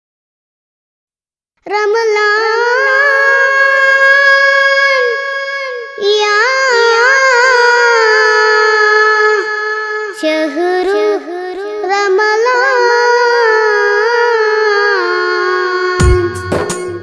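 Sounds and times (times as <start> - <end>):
boy singing unaccompanied: 1.6 - 17.0
drums and percussion: 16.0 - 17.0.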